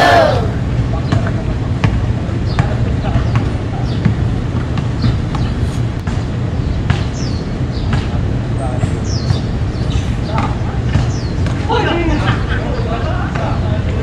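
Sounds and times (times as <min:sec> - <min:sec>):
faint players' voices: 0:00.0 - 0:06.2
basketball bouncing on concrete: 0:10.3 - 0:11.6.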